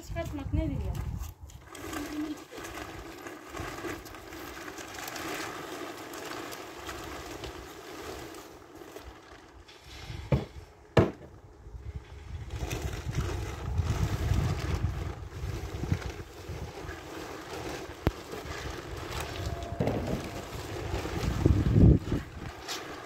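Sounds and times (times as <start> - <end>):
engine drone: 19.0 - 22.5.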